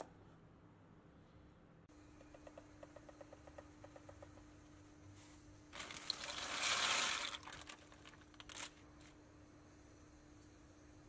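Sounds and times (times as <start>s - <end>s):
plastic bag of pasta crinkling: 5.8s - 8.9s.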